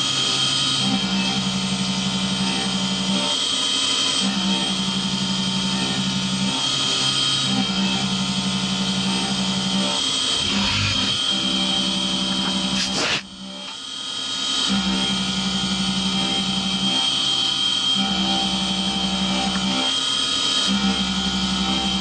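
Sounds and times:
milling machine cutting metal: 8.9s - 13.8s.

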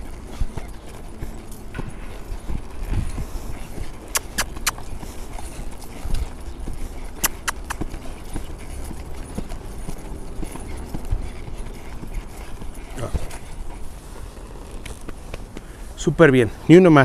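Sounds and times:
horse hoofbeats: 0.0s - 17.0s
sharp clicks: 4.1s - 4.8s.

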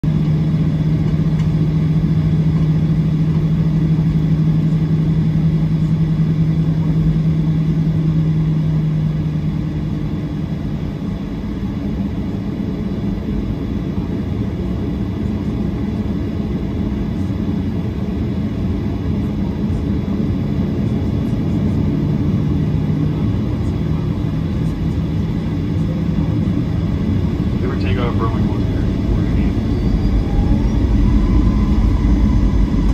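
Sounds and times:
jet engine rumble: 0.0s - 32.9s
low hum: 0.0s - 32.9s.

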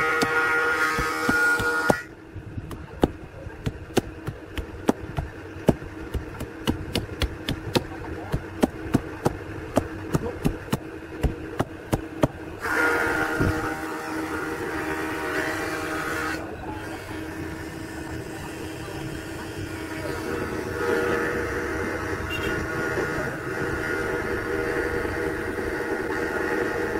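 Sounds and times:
steady rushing noise: 0.0s - 12.7s
axe chopping bamboo: 0.0s - 12.8s.

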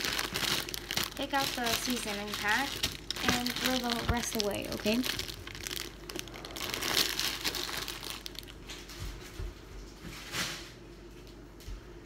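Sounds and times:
plastic packet crinkling: 0.0s - 8.9s.

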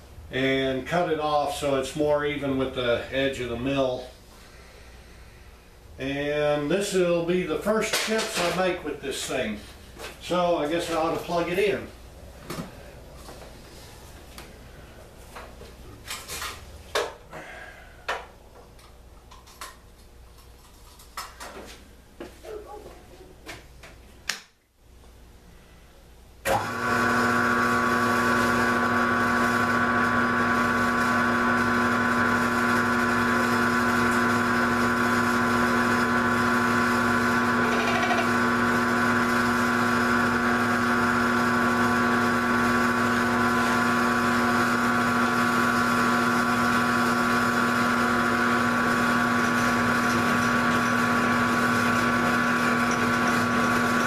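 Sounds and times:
mill drill motor humming and whining: 26.5s - 54.0s.

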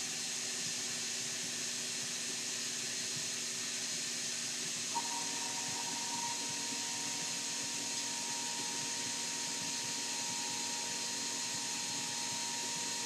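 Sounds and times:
steady high tone: 5.0s - 13.0s.

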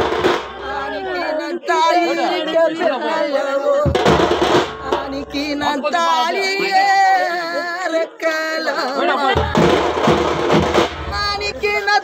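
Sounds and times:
drums beating: 0.0s - 1.4s, 3.7s - 7.0s, 9.3s - 12.0s
man singing lament: 0.6s - 9.7s.

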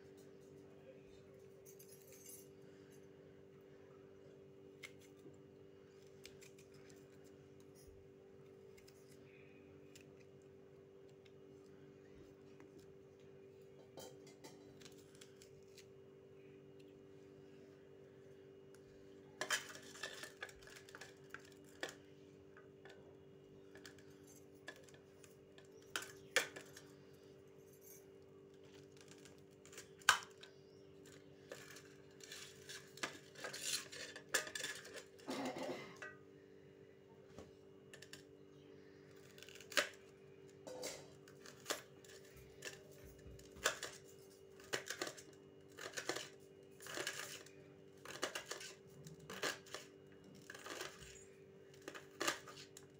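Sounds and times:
steady low hum: 0.0s - 52.9s.

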